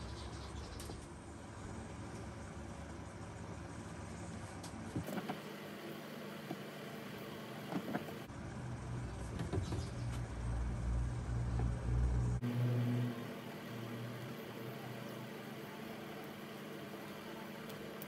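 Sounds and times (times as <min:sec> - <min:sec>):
low machine rumble: 0:08.2 - 0:18.0.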